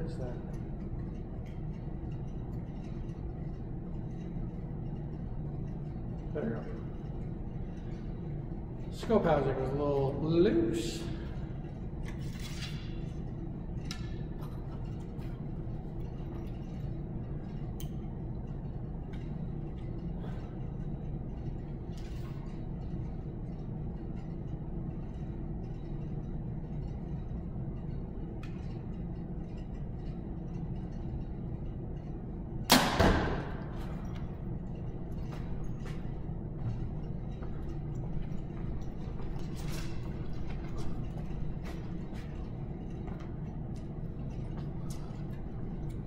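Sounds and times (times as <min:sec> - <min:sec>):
steady low hum: 0:00.0 - 0:46.0
arrow striking target: 0:32.7 - 0:33.6.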